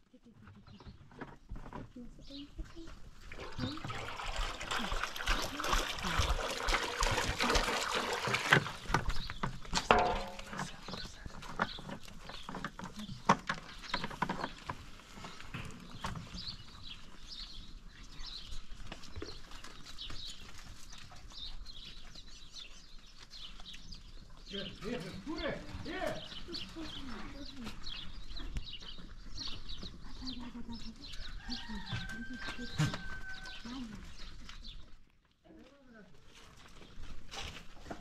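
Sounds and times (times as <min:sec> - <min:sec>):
small birds chirping: 0:00.0 - 0:04.0, 0:08.7 - 0:38.0
goats scuffling and feeding: 0:00.0 - 0:38.0
hoof clatter: 0:06.0 - 0:35.0
sharp knocks: 0:09.8 - 0:10.8.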